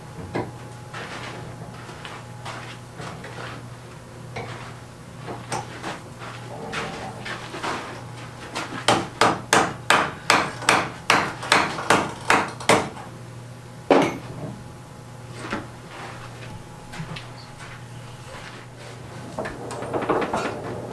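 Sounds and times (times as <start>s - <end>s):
hammer striking hot iron: 8.9s - 12.9s.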